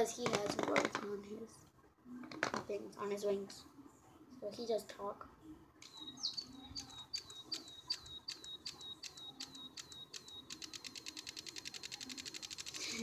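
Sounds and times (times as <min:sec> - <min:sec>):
electronic toy bird chirping: 0:05.8 - 0:13.0.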